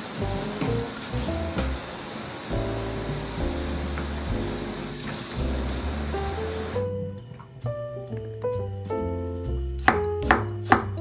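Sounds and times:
faucet running into steel sink: 0.0 - 6.8
background music: 2.5 - 11.0.

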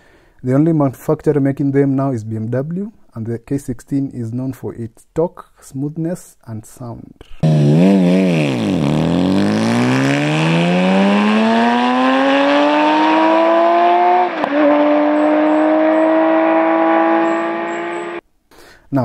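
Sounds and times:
motorcycle engine accelerating: 7.4 - 18.2.

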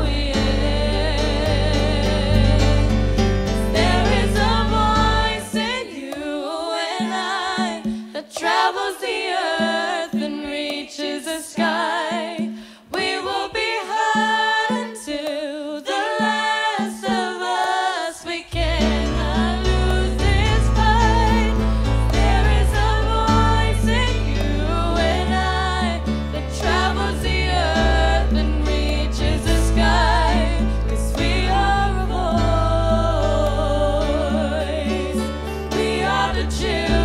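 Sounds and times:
deep bass: 0.0 - 5.5, 18.6 - 37.0
voices singing in harmony: 0.0 - 37.0.

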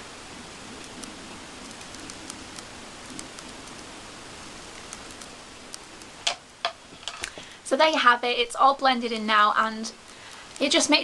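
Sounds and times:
steady hiss: 0.0 - 11.0
faint ticks: 0.8 - 3.9, 4.7 - 7.4, 9.8 - 10.7.

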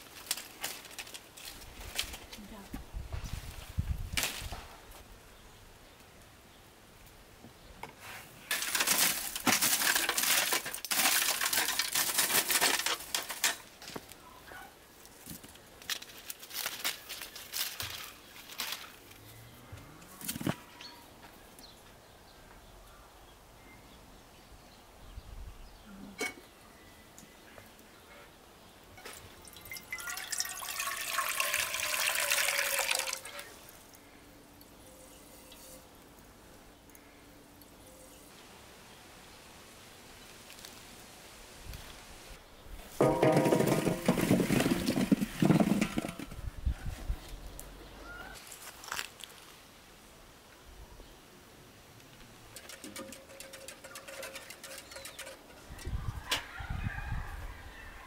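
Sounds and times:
water running and splashing: 29.4 - 33.5.

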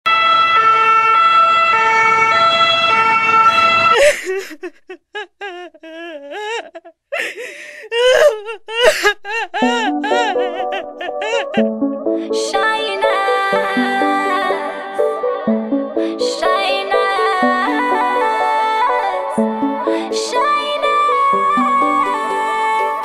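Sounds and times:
two-tone siren wailing: 0.1 - 4.0
music with held notes: 9.6 - 23.0.

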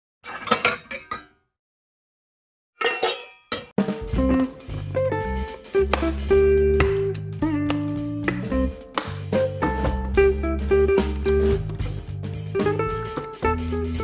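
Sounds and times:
background music with bass: 3.8 - 14.0.

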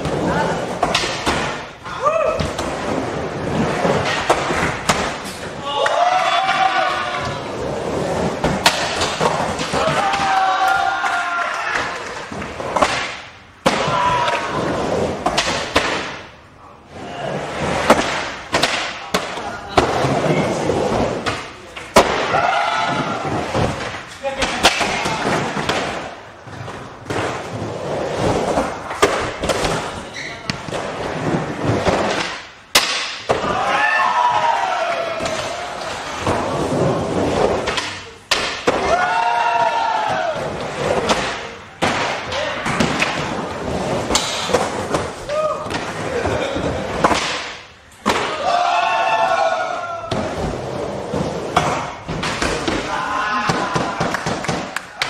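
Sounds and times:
skateboard wheels rolling on wood: 0.0 - 24.2, 24.8 - 47.4, 48.3 - 55.0
people calling out: 52.6 - 54.2.

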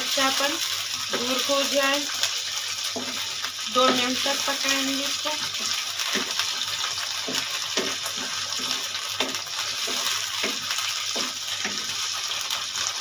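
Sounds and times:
okra sizzling in hot oil: 0.0 - 13.0
wooden spatula scraping wok: 1.0 - 12.9.

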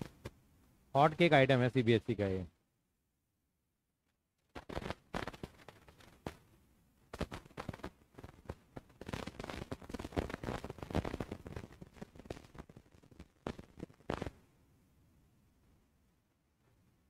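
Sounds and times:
irregular clicks and crackles: 4.1 - 6.5, 7.1 - 14.4.

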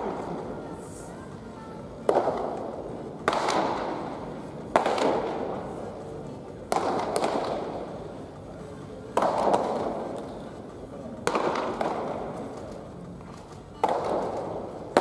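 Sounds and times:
baseballs smacking into mitts: 3.2 - 3.9, 4.7 - 5.4, 6.7 - 7.8, 9.2 - 10.3, 11.3 - 12.7, 13.8 - 15.0.

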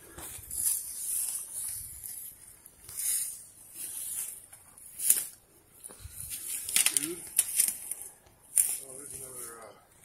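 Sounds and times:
leaves and brush rustling: 0.1 - 10.0
sharp crackle: 0.4 - 5.4.

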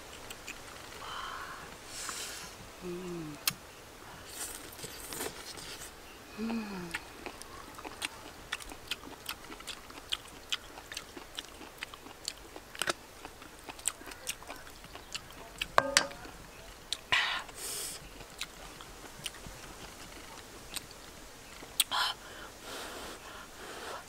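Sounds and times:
person chewing with lip smacks: 6.8 - 21.0.

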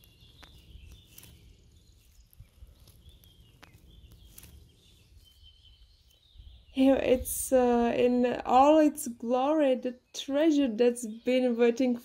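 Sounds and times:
faint clicks and rustles: 0.0 - 6.5.

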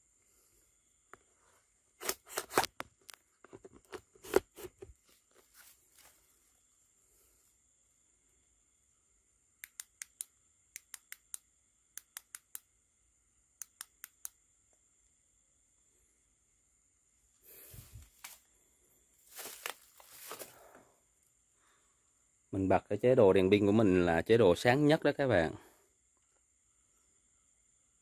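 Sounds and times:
straw crunching underfoot: 4.1 - 6.3, 17.5 - 18.5, 19.2 - 20.8.

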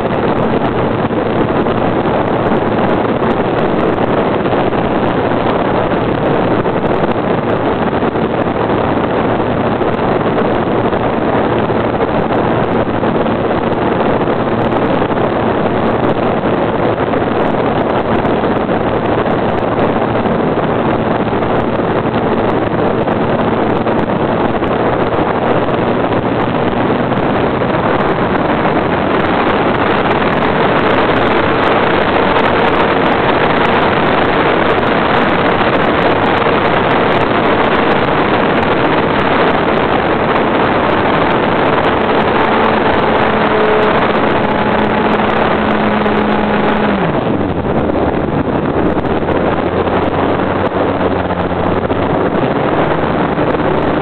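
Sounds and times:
wind rushing over microphone: 0.0 - 54.0
model airplane motor drone: 25.8 - 54.0.

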